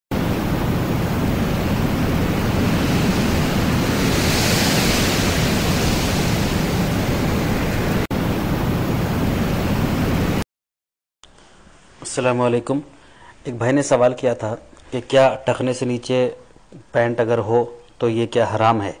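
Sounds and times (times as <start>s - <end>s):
loud steady rushing noise: 0.1s - 10.4s.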